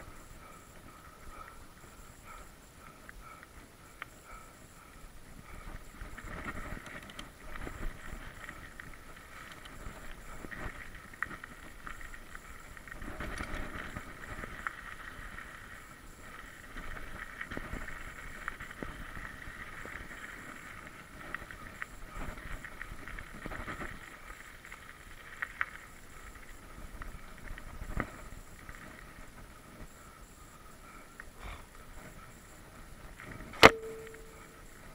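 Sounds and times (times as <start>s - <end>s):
bike tyre trail noise: 0.0s - 34.9s
steady high buzz: 33.4s - 34.9s.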